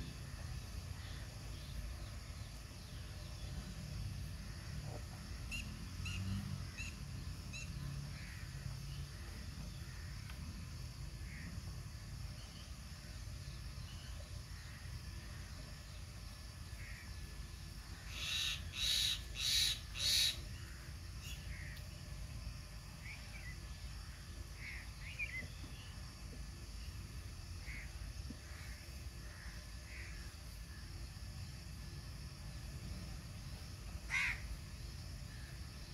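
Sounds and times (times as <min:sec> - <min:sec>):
small birds chirping: 0:24.3 - 0:26.0
crow cawing: 0:34.1 - 0:34.4.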